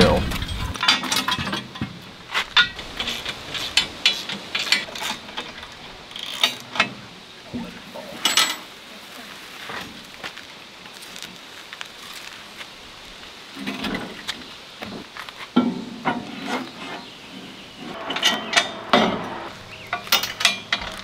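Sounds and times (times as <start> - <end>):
steel parts clicking and clanking: 0.0 - 7.0, 8.2 - 8.7, 17.9 - 21.0.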